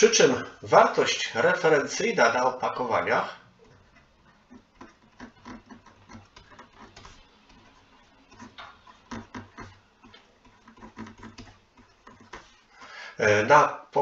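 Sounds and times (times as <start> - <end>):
stylus tapping and scratching: 3.4 - 12.8.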